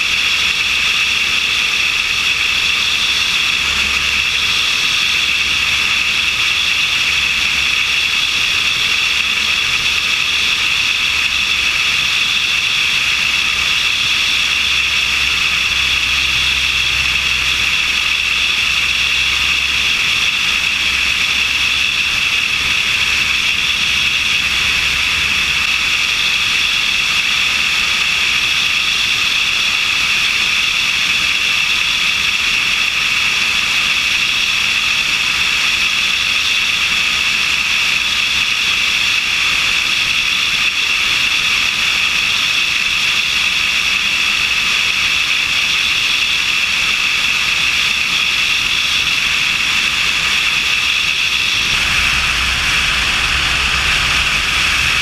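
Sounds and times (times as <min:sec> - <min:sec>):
aircraft engine drone: 0:00.0 - 0:55.0
airflow rushing over camera: 0:51.2 - 0:55.0
wind buffeting rumbles: 0:51.4 - 0:55.0.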